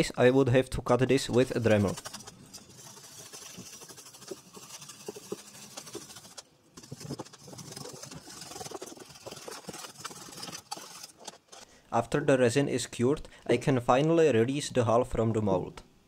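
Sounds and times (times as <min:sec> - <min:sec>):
knife scraping carbon fiber: 0:01.2 - 0:11.7.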